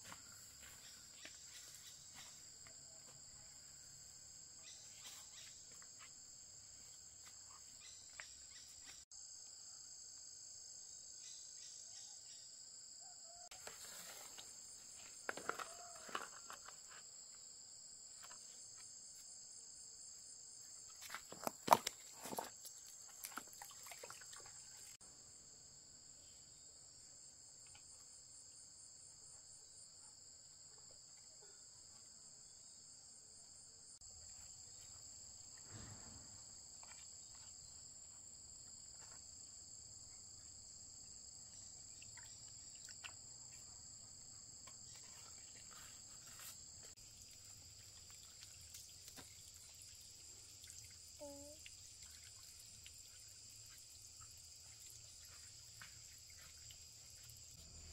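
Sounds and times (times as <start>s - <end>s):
high-pitched insects chorus: 33.8s - 57.9s.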